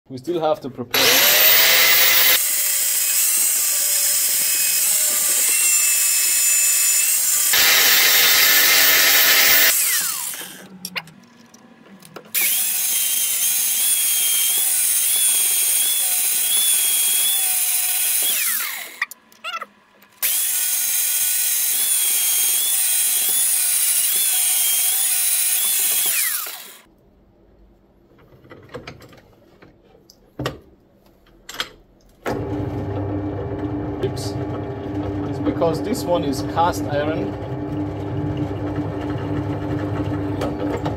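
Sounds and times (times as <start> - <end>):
angle grinder grinding metal: 0.9 - 11.4, 12.3 - 19.6, 20.2 - 26.9, 34.0 - 37.6.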